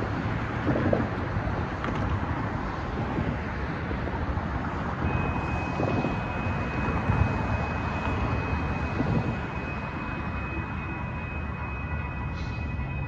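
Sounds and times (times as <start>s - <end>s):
rumble of cars passing: 0.0s - 13.0s
railroad crossing warning bell: 4.8s - 13.0s.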